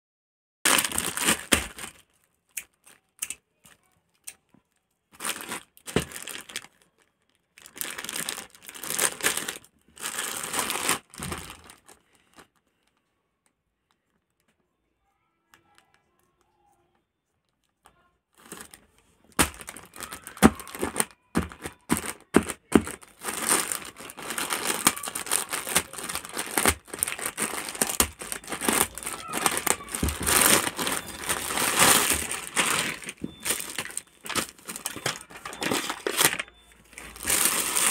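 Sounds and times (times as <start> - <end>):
plastic mailer crinkling: 0.7 - 2.2, 5.1 - 13.0, 18.4 - 37.9.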